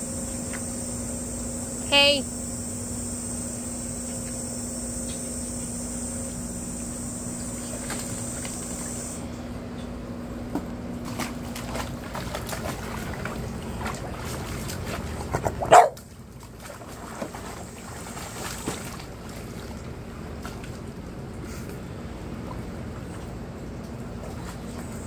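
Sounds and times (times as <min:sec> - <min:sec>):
puppy splashing water: 0:03.4 - 0:09.2, 0:11.0 - 0:25.0
dog barking: 0:15.7 - 0:16.0.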